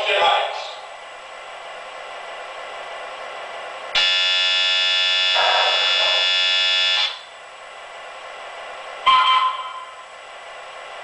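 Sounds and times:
steady buzzing tone: 0:03.9 - 0:07.3.

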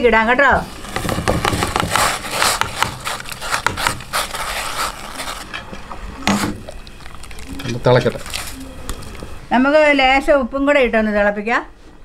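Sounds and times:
scraping food from steel bowl: 0:00.9 - 0:05.5.

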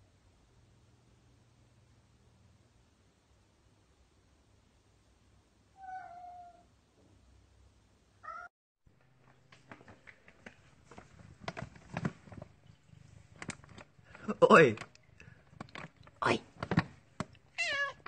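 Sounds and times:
cat meowing: 0:05.8 - 0:06.7, 0:08.2 - 0:08.5, 0:17.5 - 0:18.0
cat rummaging in plastic bag: 0:09.8 - 0:17.4.

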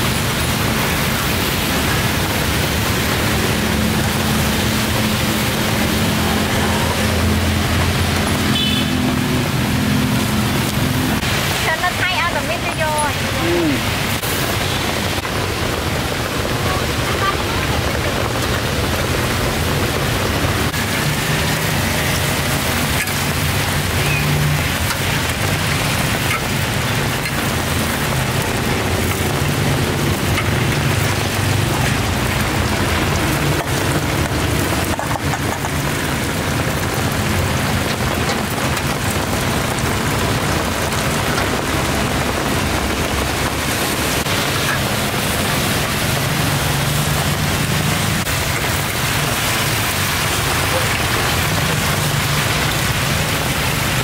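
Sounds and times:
hot oil sizzling in a wok: 0:00.0 - 0:54.0.

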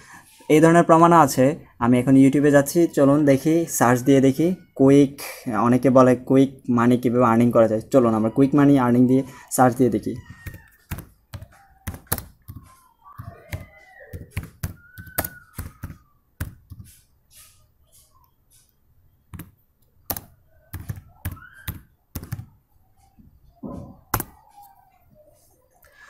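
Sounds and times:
keyboard typing clicks: 0:10.2 - 0:17.0, 0:19.3 - 0:22.5, 0:23.8 - 0:24.6.

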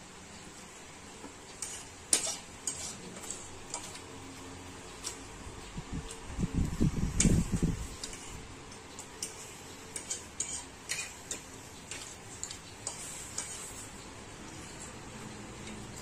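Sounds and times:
forks clicking on plates: 0:08.0 - 0:13.7.

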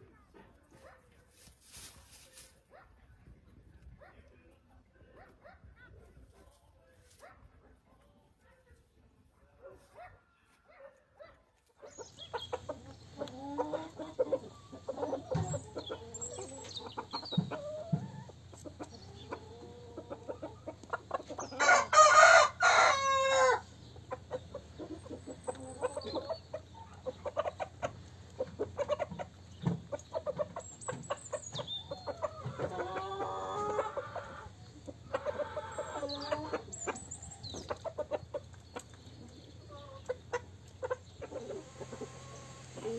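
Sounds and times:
chickens clucking: 0:11.7 - 0:42.9
rooster crowing: 0:21.6 - 0:23.6.

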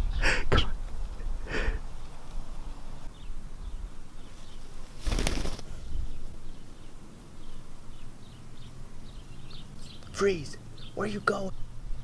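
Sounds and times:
bird wings flapping: 0:04.8 - 0:05.8.

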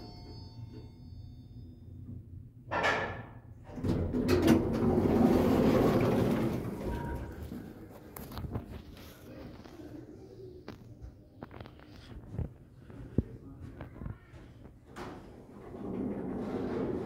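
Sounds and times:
elevator doors rumbling open: 0:03.7 - 0:07.4.

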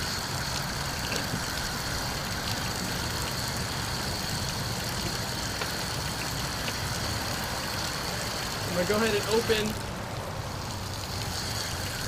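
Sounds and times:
low mechanical rumble: 0:00.0 - 0:12.0.

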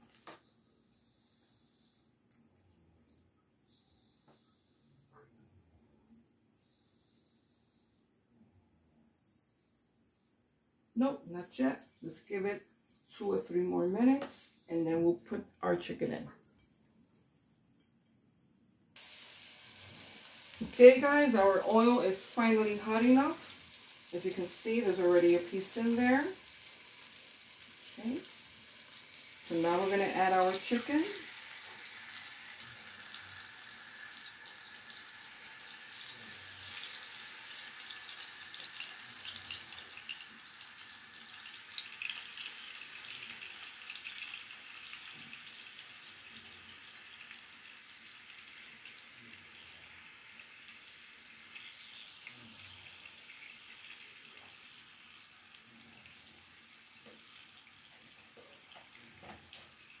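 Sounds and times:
chicken sizzling in a frying pan: 0:19.0 - 1:00.0.

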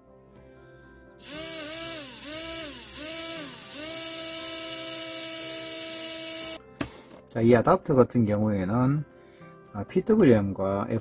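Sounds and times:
small electric motor whining: 0:01.2 - 0:06.6.

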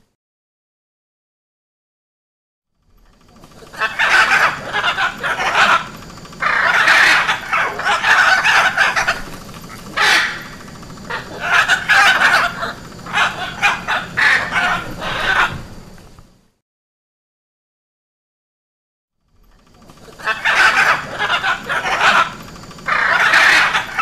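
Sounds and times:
macaw squawking: 0:03.2 - 0:15.9, 0:19.7 - 0:24.0.

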